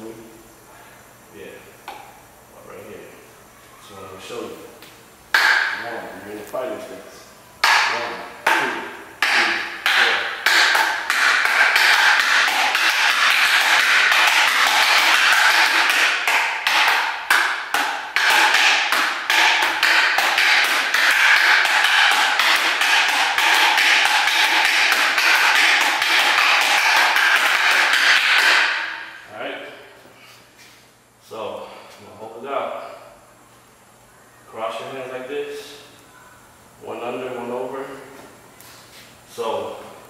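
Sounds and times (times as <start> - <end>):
fighting sticks clacking: 7.6 - 29.2.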